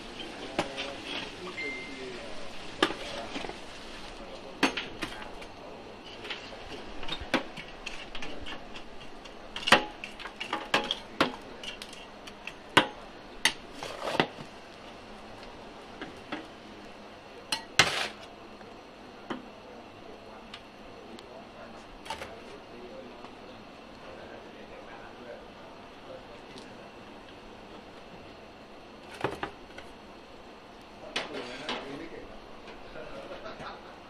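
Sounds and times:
metal scoop scraping charcoal: 13.5 - 14.4, 17.6 - 18.3.

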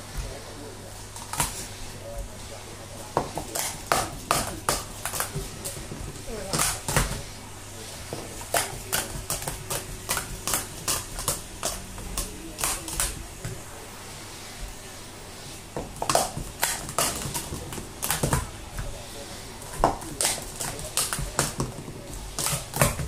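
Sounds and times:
plastic cups clacking: 19.6 - 23.0.

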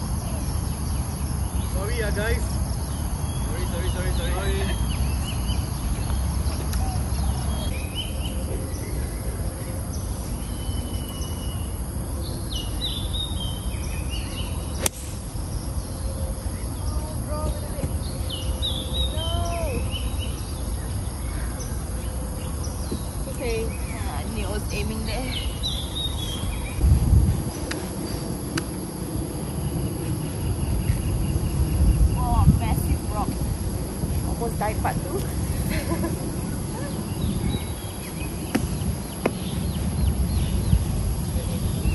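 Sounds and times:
birds chirping: 0.0 - 41.9
outdoor background noise: 0.0 - 41.9
wind rumble: 0.0 - 41.9
golf club striking ball: 14.8 - 15.4.

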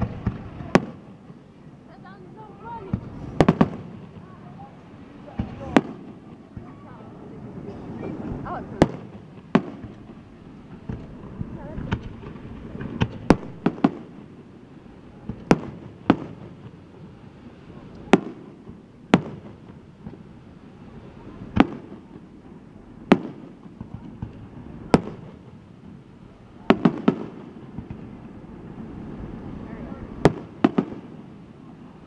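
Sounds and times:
firework shells bursting: 0.0 - 1.4, 2.6 - 7.1, 7.9 - 17.2, 21.3 - 26.0, 30.1 - 31.9.

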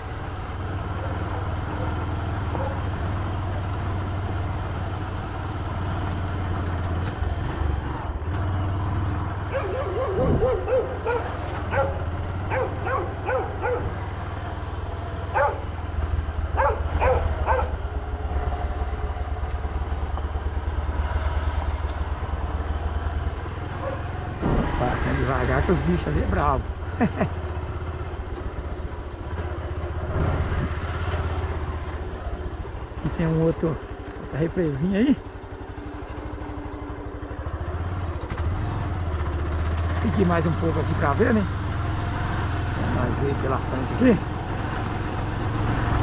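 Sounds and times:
motorcycle engine drone: 0.0 - 46.0
dogs barking and yelping: 0.9 - 3.0, 9.4 - 14.0, 15.3 - 15.8, 16.4 - 18.0, 23.7 - 24.1.

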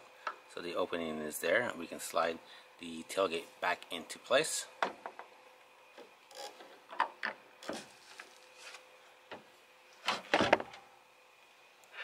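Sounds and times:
tailgate clunking and scraping: 10.0 - 10.8.

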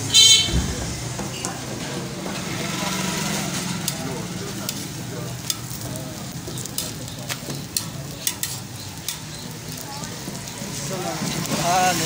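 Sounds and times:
bread sizzling on griddle: 2.0 - 12.0
metal spatula scraping griddle: 6.5 - 9.6.

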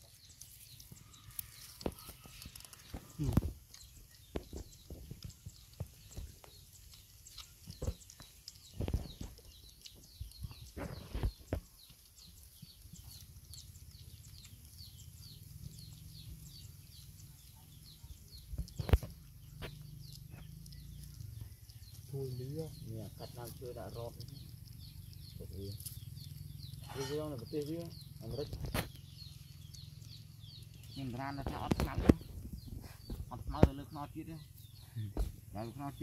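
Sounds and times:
puppies chewing and lapping: 0.0 - 27.0.

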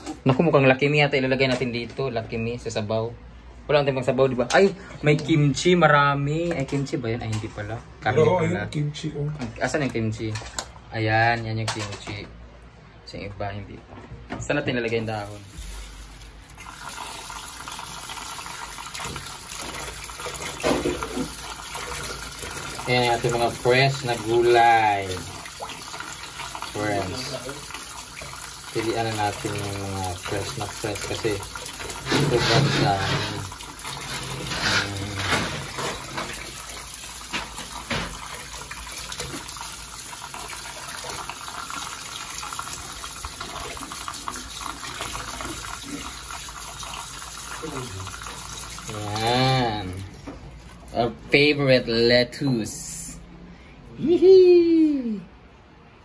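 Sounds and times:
tap water running into sink: 14.9 - 51.1.

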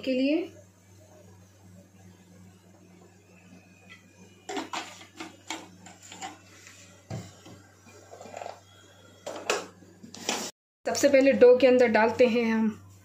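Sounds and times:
low steady hum: 0.0 - 10.3.

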